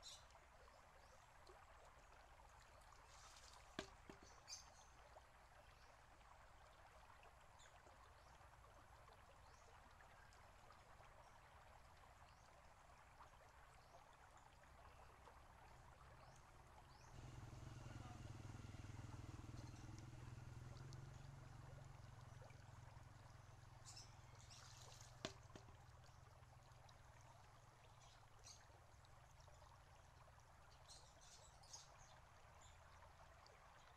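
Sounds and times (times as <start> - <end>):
water trickling and bubbling: 0.0 - 33.9
low steady hum: 15.0 - 30.8.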